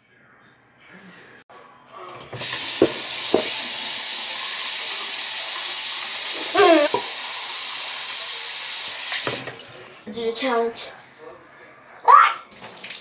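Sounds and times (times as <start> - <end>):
faucet running into sink: 2.3 - 9.9.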